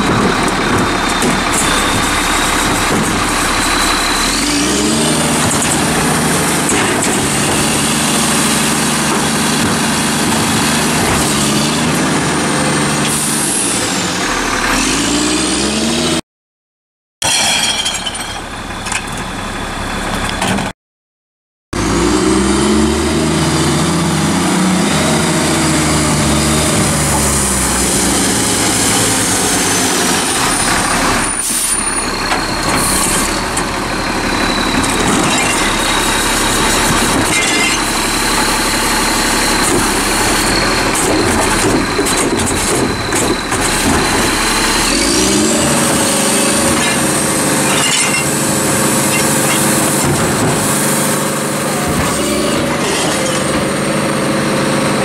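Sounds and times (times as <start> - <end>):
garbage truck engine running: 0.0 - 16.0, 21.8 - 55.0.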